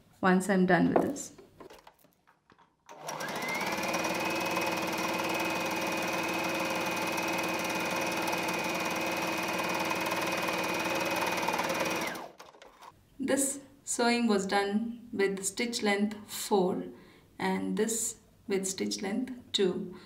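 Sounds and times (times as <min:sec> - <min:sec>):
sewing machine stitching: 0:02.8 - 0:12.9.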